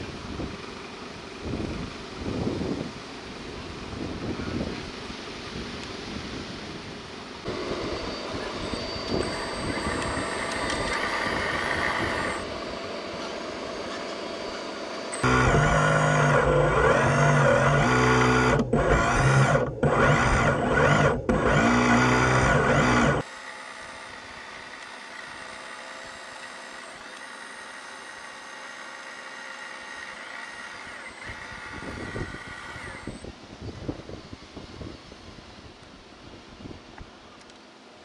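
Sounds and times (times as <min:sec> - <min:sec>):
hydraulic pump whining: 0:07.4 - 0:33.3.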